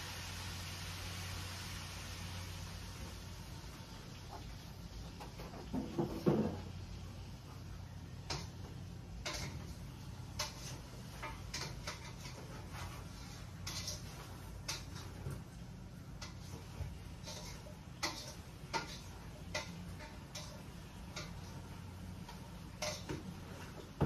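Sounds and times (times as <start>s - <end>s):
kitchen utensils clicking and tapping: 8.2s - 12.9s, 13.5s - 15.5s, 16.2s - 24.0s
cookware clatter: 9.2s - 15.3s, 16.2s - 21.5s, 22.2s - 24.0s.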